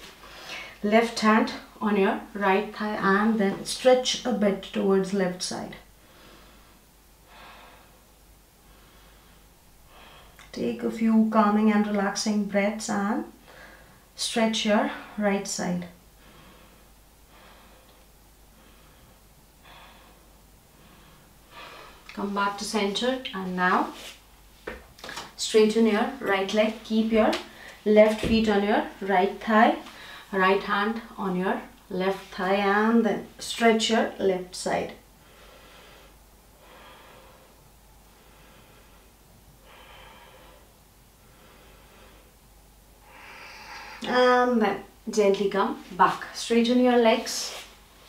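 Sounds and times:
woman breathing calmly: 0.1 - 0.8, 5.9 - 10.5, 13.4 - 14.2, 14.8 - 15.3, 15.9 - 22.1, 27.5 - 27.8, 29.9 - 30.4, 35.0 - 45.0.

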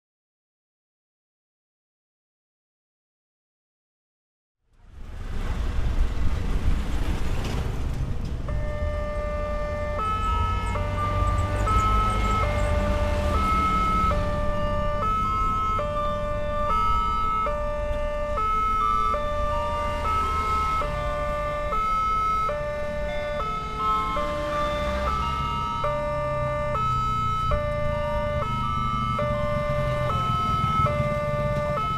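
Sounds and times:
motorcycles and truck rumbling past: 4.8 - 31.9
level crossing warning alarm: 8.4 - 31.9.

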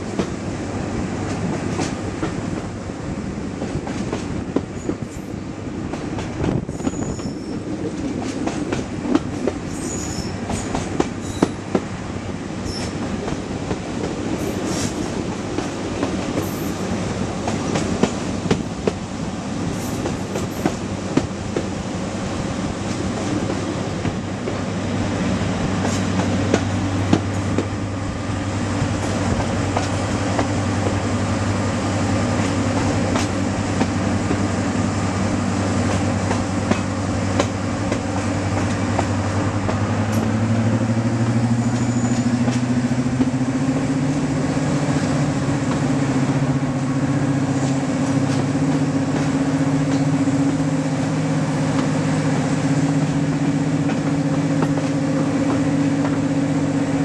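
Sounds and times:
train rumble: 0.0 - 57.0
brief high squeaks: 6.7 - 7.7, 9.7 - 11.6, 12.6 - 13.0, 41.6 - 42.4
wheels clicking over track: 35.8 - 44.1.

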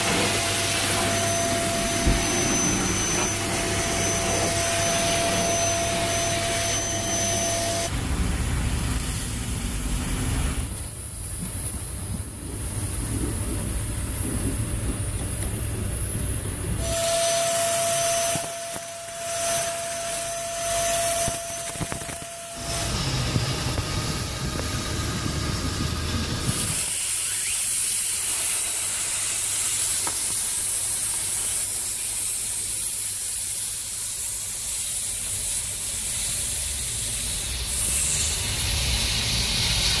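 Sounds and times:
faint steady whine: 0.0 - 40.0
detailing tool hissing: 16.8 - 40.0.

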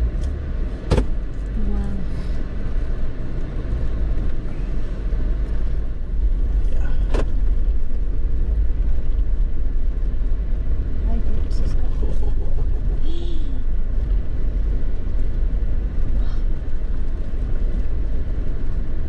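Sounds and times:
vehicle rumbling over gravel: 0.0 - 19.0.

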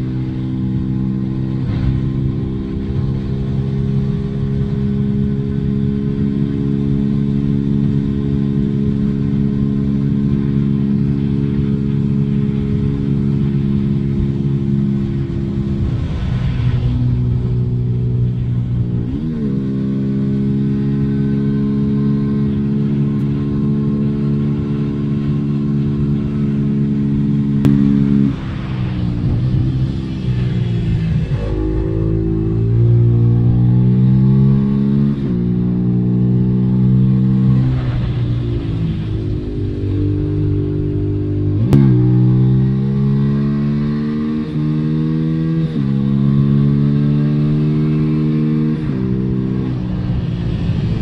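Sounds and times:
motorcycle engine running: 17.3 - 51.0.

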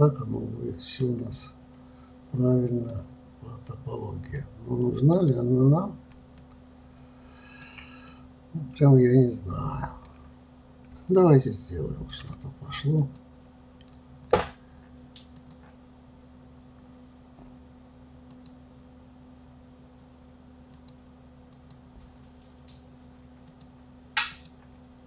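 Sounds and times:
steady low hum: 0.0 - 25.0
faint ticks: 18.3 - 18.6, 20.7 - 22.8.

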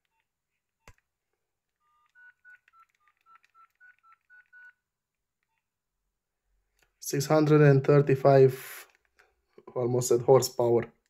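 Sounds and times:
phone keypad beeps: 1.8 - 4.8.

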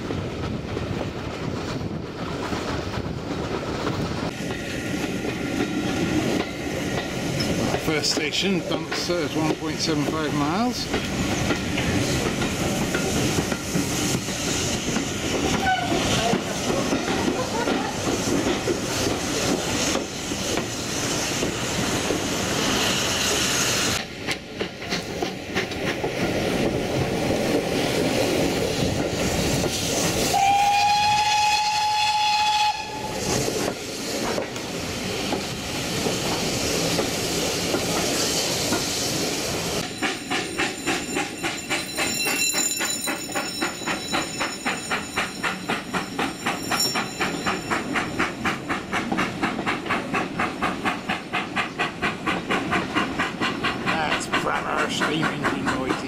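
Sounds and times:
steam whistle: 15.6 - 16.0, 30.3 - 33.2
wheel and rail clatter: 33.3 - 56.0.

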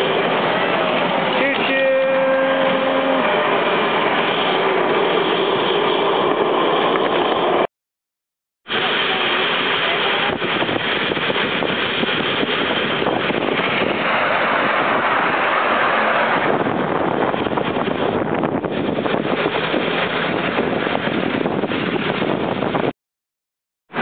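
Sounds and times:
moving train rushing: 0.0 - 7.7, 8.7 - 22.9
wind on microphone: 10.1 - 22.9.

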